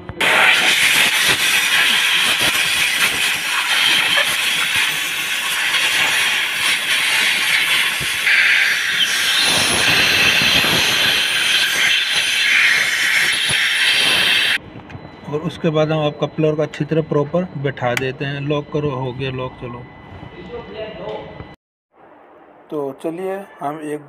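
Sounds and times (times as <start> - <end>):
air blow gun hissing: 0.2 - 14.6.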